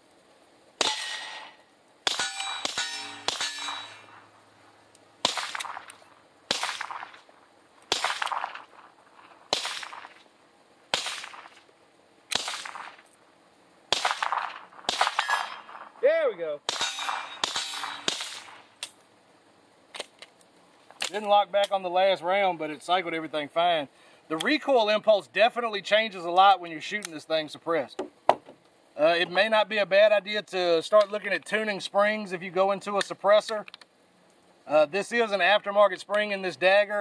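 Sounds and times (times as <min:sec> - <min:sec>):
suppressed pistol shots: 0:00.8 - 0:03.8, 0:05.2 - 0:07.2, 0:07.9 - 0:08.7, 0:09.5 - 0:10.2, 0:10.9 - 0:11.6, 0:12.3 - 0:13.0, 0:13.9 - 0:15.9, 0:16.7 - 0:18.9
metallic clang of steel targets: 0:00.8 - 0:04.3, 0:13.9 - 0:15.9, 0:16.7 - 0:18.7.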